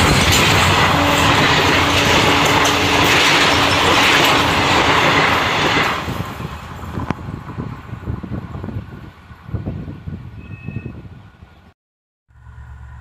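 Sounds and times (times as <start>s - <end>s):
train wheels clattering over rail joints: 0.0s - 7.2s.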